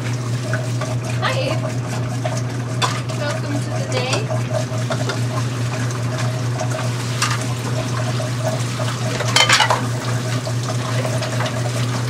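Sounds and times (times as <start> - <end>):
water sloshing in sink: 0.0 - 12.0
dishes clattering: 2.8 - 3.1, 9.1 - 9.9
bowl scraping and clinking: 9.2 - 9.9.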